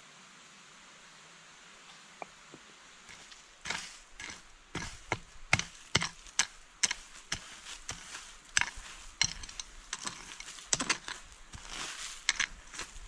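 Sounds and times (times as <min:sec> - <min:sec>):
hand tool striking stony soil: 0:03.1 - 0:13.0.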